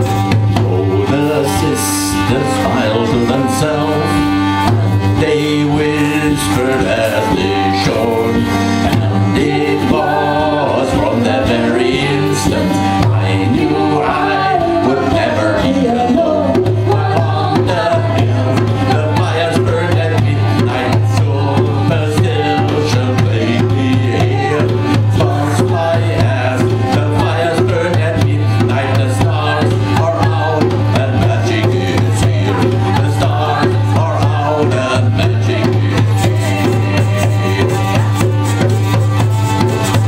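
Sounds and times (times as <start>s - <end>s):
djembe played by hand: 0.0s - 40.0s
hurdy-gurdy drone: 0.0s - 40.0s
woman singing: 9.0s - 26.4s, 27.2s - 38.5s.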